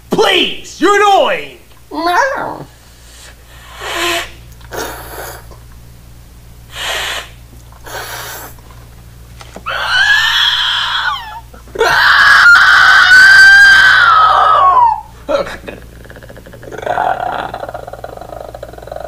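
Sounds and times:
man screaming: 9.7 - 15.1.

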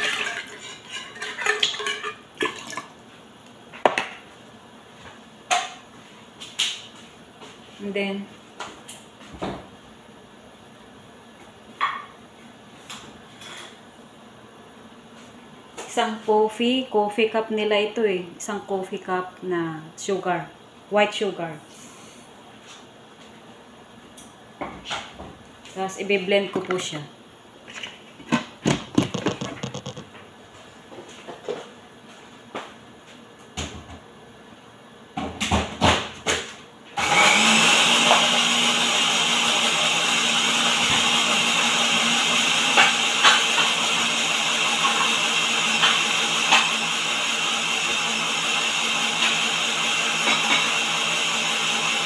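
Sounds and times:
kitchenware clacking: 0.0 - 2.8, 26.5 - 27.0, 28.2 - 30.2
glass blender jar knocking: 28.9 - 30.1.

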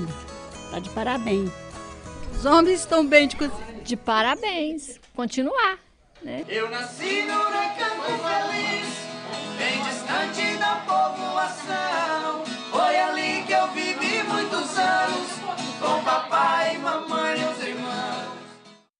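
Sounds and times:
strummed acoustic guitar: 0.0 - 3.7, 6.4 - 18.8
men singing: 6.4 - 18.5.

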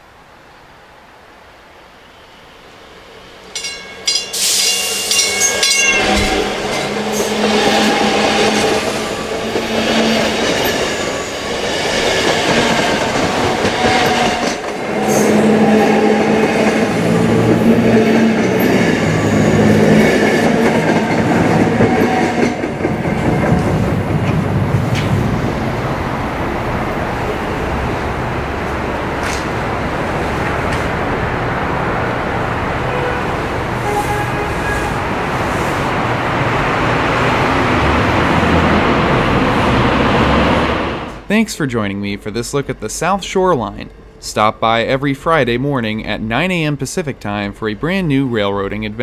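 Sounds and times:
train wheel and rail noise: 0.0 - 49.0
train wheels clattering on rail joints: 3.5 - 25.5, 29.1 - 29.6
train horn blasts: 3.6 - 10.4, 13.3 - 20.6, 32.8 - 35.1.

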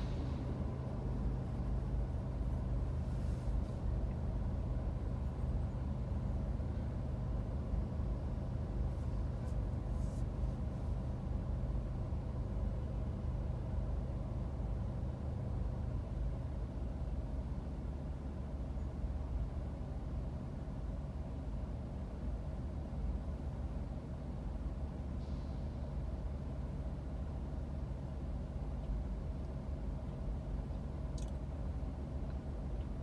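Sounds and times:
car idling low rumble: 0.0 - 33.0
faint hum: 0.0 - 33.0.

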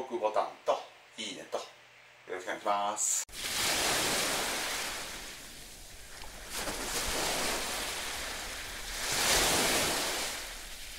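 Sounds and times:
sea waves washing in: 3.3 - 10.9.

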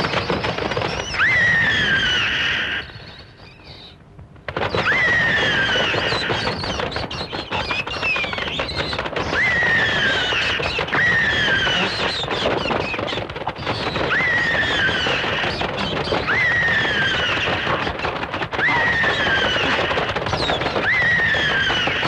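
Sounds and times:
dense crackling rush: 0.0 - 22.0
shrill sliding cry: 1.1 - 3.1, 4.8 - 6.6, 9.3 - 12.2, 14.0 - 17.9, 18.5 - 22.0.

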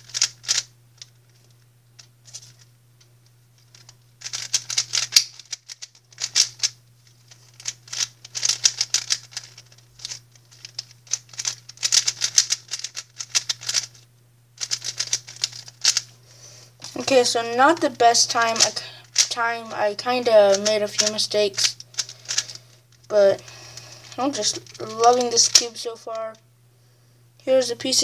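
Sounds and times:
plastic puzzle cube clicking: 0.1 - 1.1, 3.7 - 6.7, 7.5 - 13.9, 14.6 - 16.0, 20.6 - 22.6, 24.3 - 25.7.

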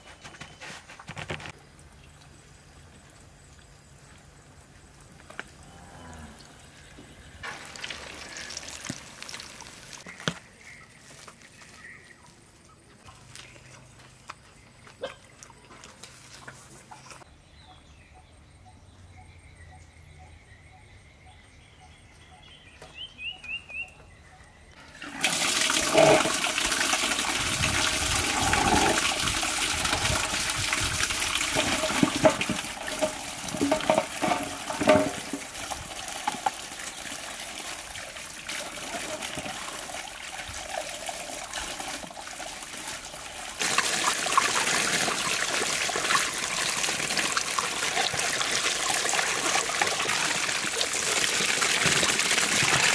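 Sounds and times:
tap water gushing into metal basin: 7.4 - 10.0, 24.8 - 52.9
splashing water: 7.4 - 10.4, 25.0 - 52.9
bird chirps: 16.9 - 24.8.

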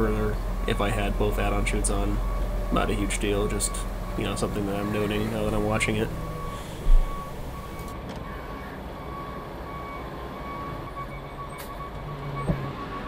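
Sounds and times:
backup alarm beeping: 0.0 - 13.0
diesel engine rumbling: 0.0 - 13.0.

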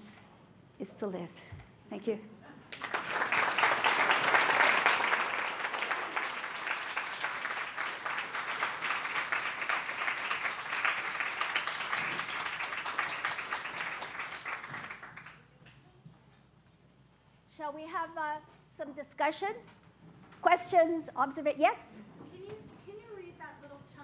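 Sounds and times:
audience applauding: 2.7 - 15.4.

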